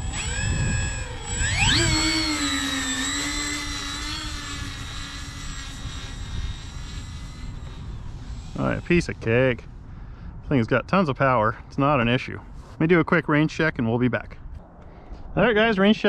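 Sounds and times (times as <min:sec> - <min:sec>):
electric motors and propellers whining: 0:00.0 - 0:09.9.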